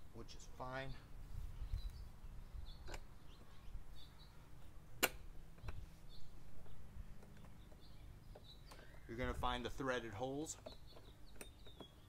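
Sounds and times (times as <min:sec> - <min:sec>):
faint bird chirps: 0:01.4 - 0:04.9, 0:05.6 - 0:09.4
sharp click: 0:05.0 - 0:05.8.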